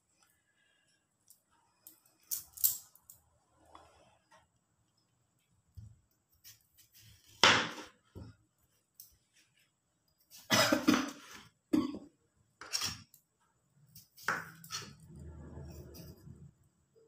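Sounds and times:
low steady hum: 11.7s - 17.0s.

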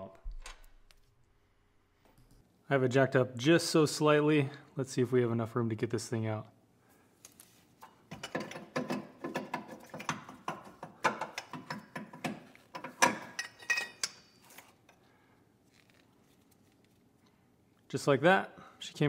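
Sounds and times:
metal clicks clunks and scrapes: 7.8s - 14.7s.

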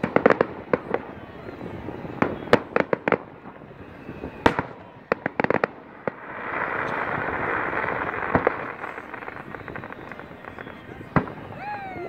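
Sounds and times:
fireworks bangs: 0.0s - 12.0s
fireworks crackling: 0.0s - 12.0s.

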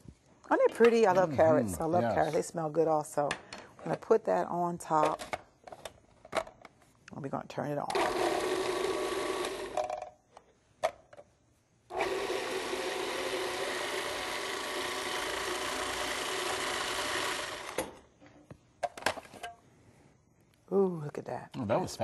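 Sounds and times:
food processor motor running: 8.0s - 9.8s, 11.9s - 17.8s.

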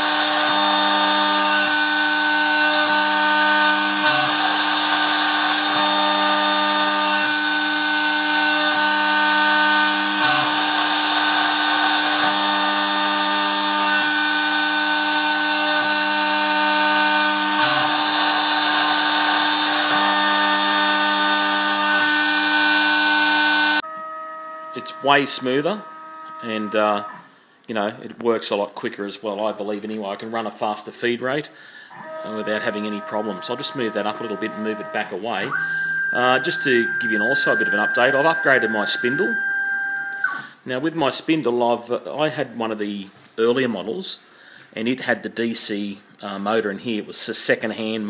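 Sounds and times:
metal cutting hiss: 0.0s - 23.8s
router spindle whine: 0.0s - 27.2s, 32.0s - 40.5s.

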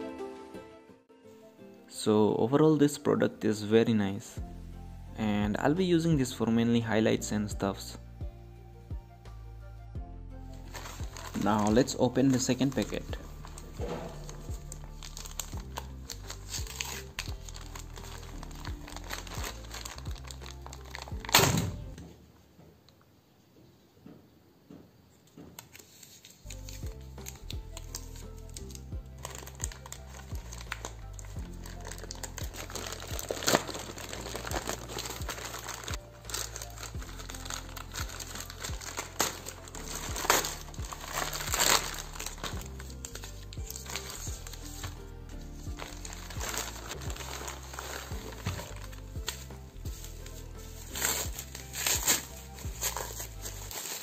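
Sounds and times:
background music with steady beat: 0.0s - 22.1s, 25.4s - 54.0s
plastic mailer bag crinkling: 10.6s - 21.9s, 25.8s - 54.0s
plastic bag ripping: 10.6s - 22.0s, 25.8s - 54.0s.

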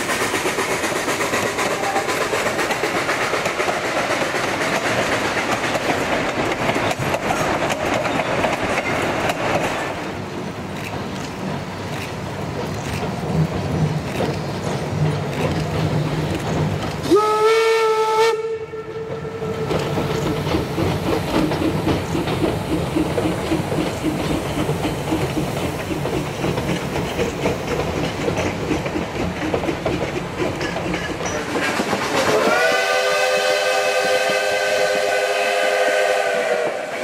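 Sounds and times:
train clattering across a bridge: 0.0s - 37.0s
steam whistle blast: 17.1s - 19.7s, 32.3s - 37.0s
chime steam whistle: 32.3s - 37.0s.

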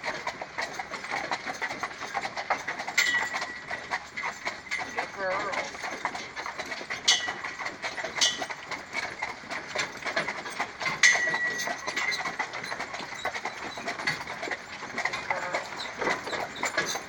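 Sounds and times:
horse hooves clip-clopping: 0.0s - 17.0s.

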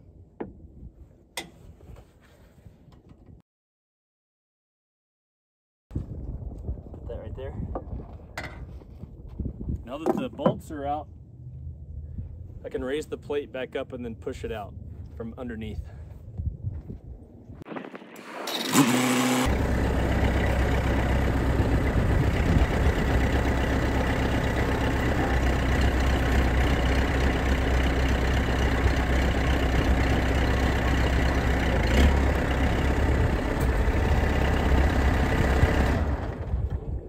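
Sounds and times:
machine engine running: 17.8s - 36.8s.

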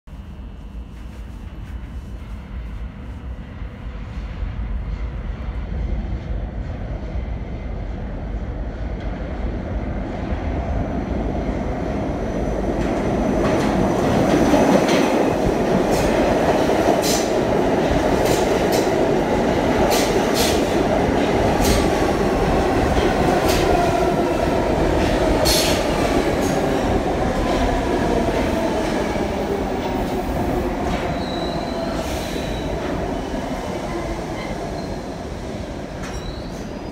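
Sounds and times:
subway train rumble: 0.1s - 36.9s
train wheels clattering: 12.8s - 22.2s.

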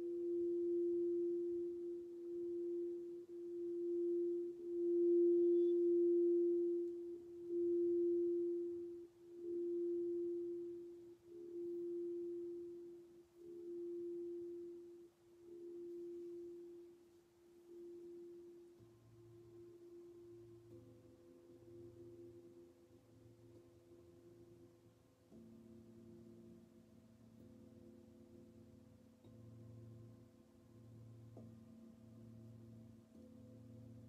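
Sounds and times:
metal singing bowl hum: 0.0s - 22.6s
crystal singing bowl tone: 0.0s - 34.0s.

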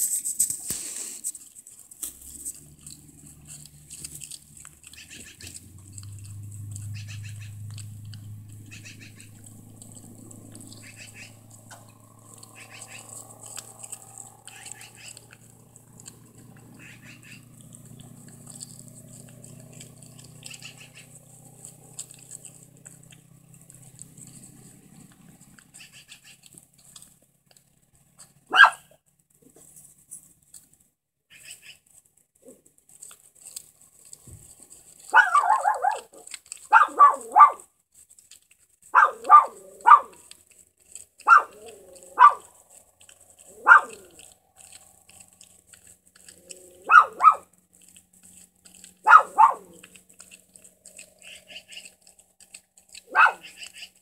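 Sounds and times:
dog barking: 28.5s - 29.0s, 35.1s - 37.7s, 38.9s - 40.2s, 41.2s - 42.5s, 43.6s - 44.2s, 46.8s - 47.5s, 49.0s - 49.8s, 53.0s - 53.6s.

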